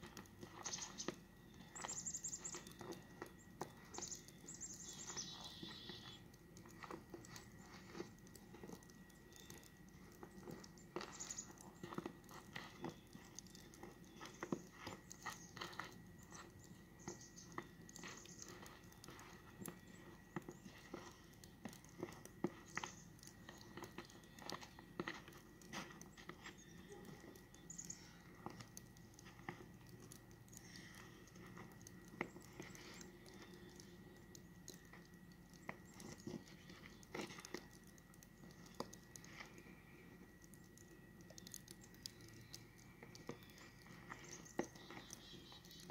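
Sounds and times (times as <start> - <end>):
footsteps crunching on snow: 0.0 - 8.8, 10.2 - 27.4.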